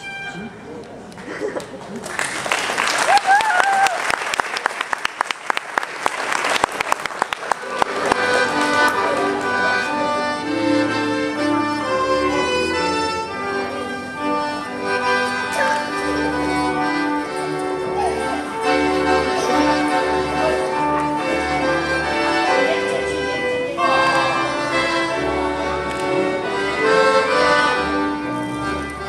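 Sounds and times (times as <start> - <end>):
audience applause: 1.6 - 10.0
folk dance music: 3.1 - 29.0.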